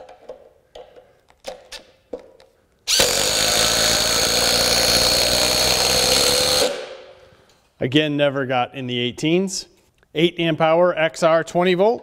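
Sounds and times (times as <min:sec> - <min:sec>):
impact driver hammering: 0:02.9 - 0:07.0.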